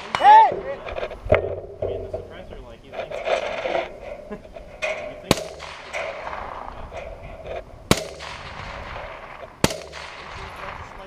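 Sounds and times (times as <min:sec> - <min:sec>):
sharp rifle shots: 0:05.0 - 0:11.0.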